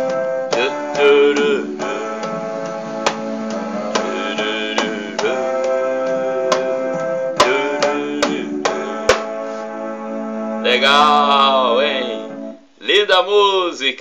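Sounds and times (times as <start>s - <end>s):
instrumental backing music: 0.0s - 12.8s
frame drum struck by hand: 3.0s - 9.4s.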